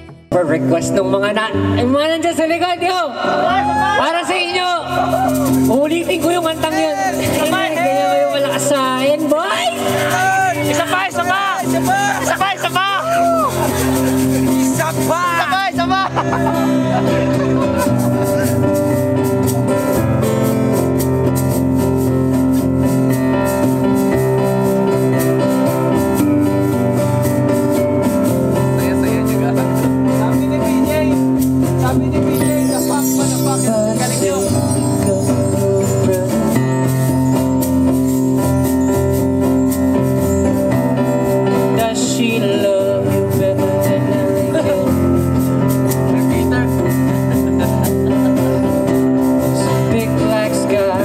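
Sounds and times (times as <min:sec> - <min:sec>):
electric keyboard chords: 0:00.0 - 0:51.0
cajon beat: 0:01.9 - 0:51.0
man singing: 0:03.2 - 0:18.8, 0:31.8 - 0:37.2, 0:41.6 - 0:48.7, 0:49.4 - 0:51.0
strummed acoustic guitar: 0:05.5 - 0:51.0.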